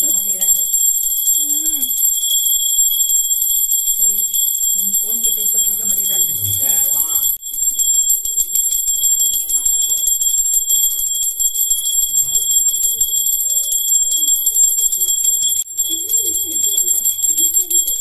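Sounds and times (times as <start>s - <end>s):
hand bell ringing rapidly: 0.0s - 18.0s.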